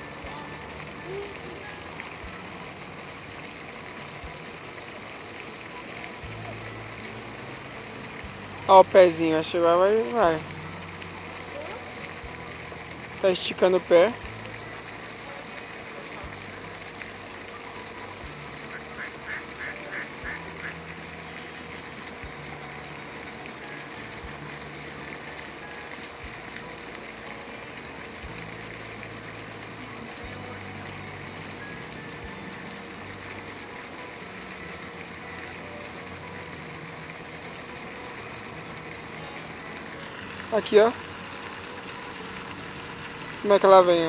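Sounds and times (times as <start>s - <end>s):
low mechanical hum: 13.9s - 43.8s
duck quacking: 19.0s - 20.7s.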